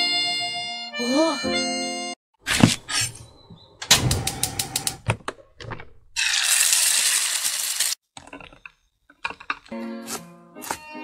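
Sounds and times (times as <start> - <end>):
food sizzling in frying pan: 6.2 - 8.0.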